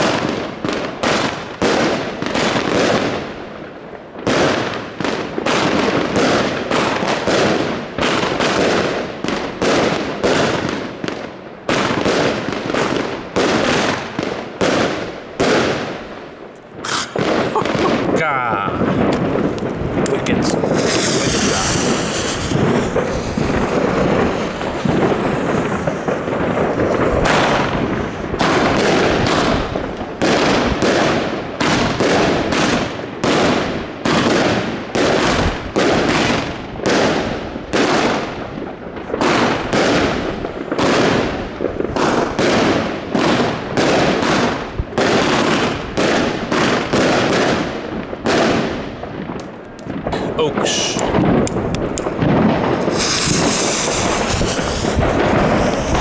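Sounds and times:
firework shots: 0.0s - 56.0s
firework hissing: 16.8s - 30.3s, 50.0s - 56.0s.

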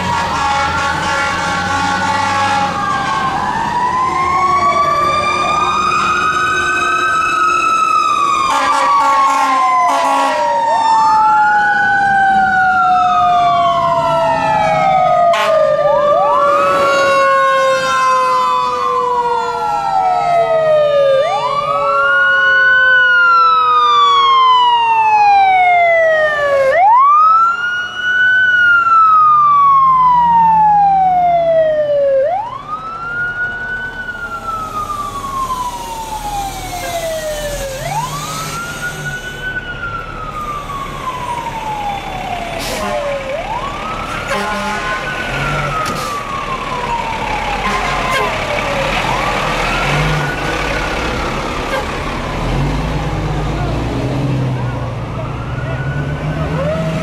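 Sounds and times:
air horn blasts: 0.0s - 3.3s, 8.5s - 10.6s, 15.3s - 15.6s, 16.4s - 18.5s, 36.5s - 38.0s, 42.6s - 43.2s, 44.2s - 45.1s, 47.6s - 48.5s, 51.7s - 52.0s
fire truck sirens wailing: 0.0s - 57.0s.

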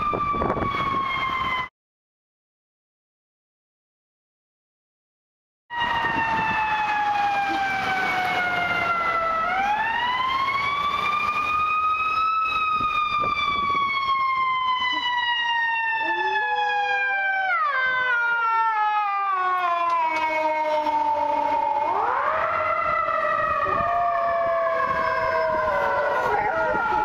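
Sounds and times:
ambulance siren wailing: 0.0s - 1.7s, 5.7s - 27.0s
dog howling: 16.0s - 17.2s, 23.6s - 27.0s.

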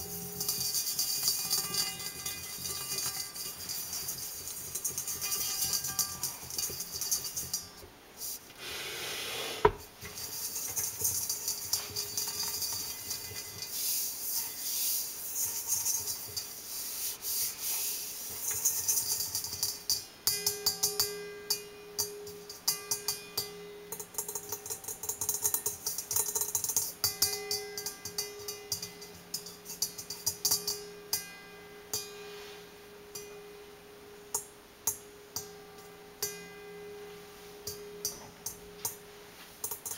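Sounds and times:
metal bowl ringing: 0.0s - 7.8s, 9.8s - 16.8s, 18.2s - 39.9s
fingers tapping metal bowl: 0.0s - 7.9s, 9.7s - 16.8s, 17.4s - 32.2s, 33.0s - 39.9s
rubbing on metal bowl: 0.0s - 8.5s, 9.3s - 30.9s.

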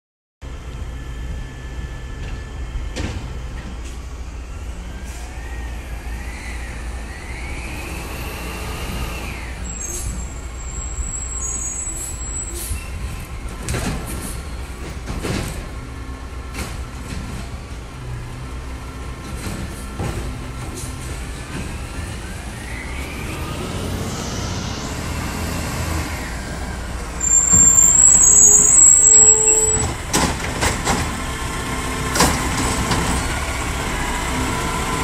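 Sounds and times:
garbage truck engine running: 13.2s - 35.0s
hydraulic whine: 21.4s - 30.4s.

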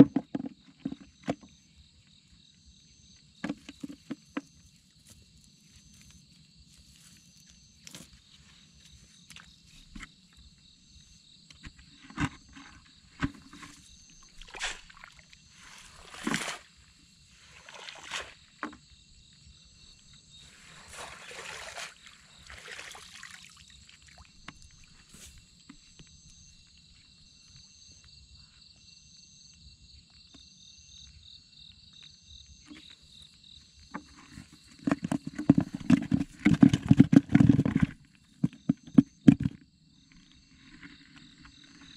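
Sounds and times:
insect chorus: 0.0s - 41.9s
water sloshing and splashing: 12.0s - 18.9s, 20.4s - 25.5s.

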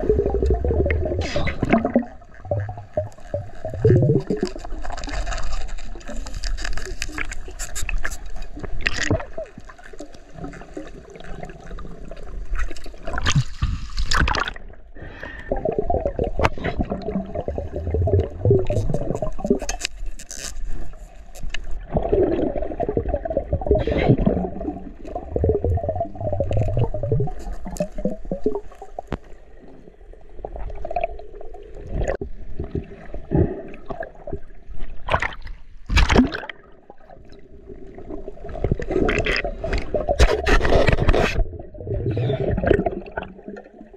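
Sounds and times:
underwater knocks and clicks: 0.0s - 9.6s, 16.0s - 19.9s, 38.5s - 43.8s
underwater gurgling and rushing: 0.0s - 43.9s.

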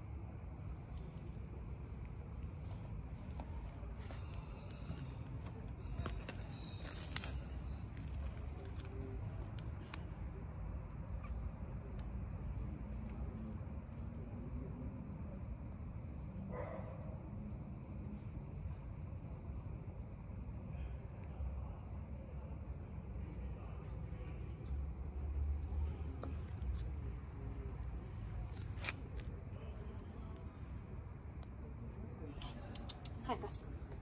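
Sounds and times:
insects trilling: 2.6s - 12.4s.

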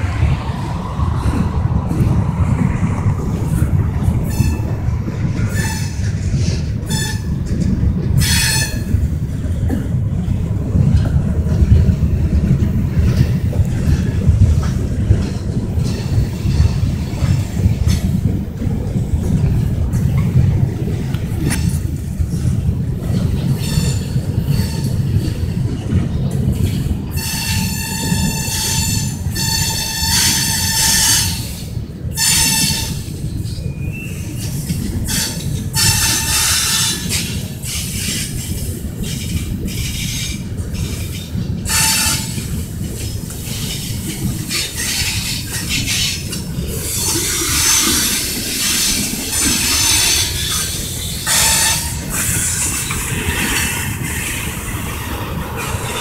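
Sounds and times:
train wheels rumbling on rails: 0.0s - 56.0s
wheel squeal: 46.9s - 53.0s.

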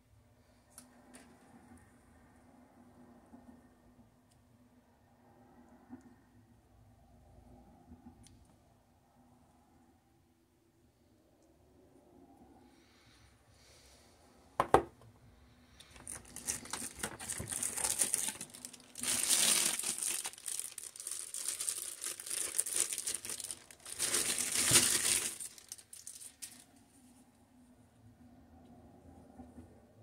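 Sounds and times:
plastic bag crinkling: 15.9s - 26.7s.

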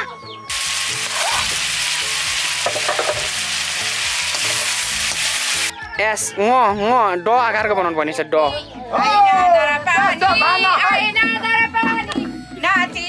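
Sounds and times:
food sizzling in hot oil: 0.5s - 5.7s.

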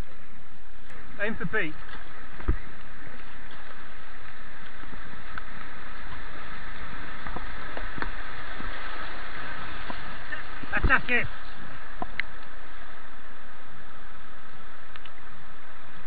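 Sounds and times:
white-water rapids rushing: 1.2s - 16.0s
low thump: 2.4s - 2.8s.

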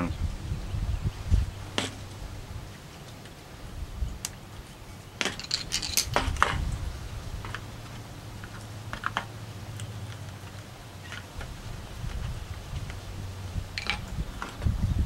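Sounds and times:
steady low hum: 0.0s - 15.0s
rattling clatter: 5.2s - 6.6s.

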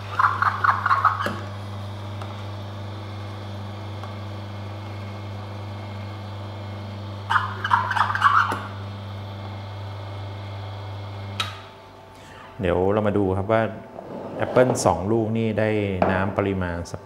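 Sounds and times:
juicer motor humming: 0.0s - 12.6s.

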